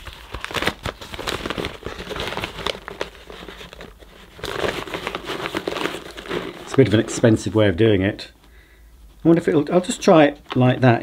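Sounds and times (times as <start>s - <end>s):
paper bag crinkling and rustling: 0.0s - 7.7s.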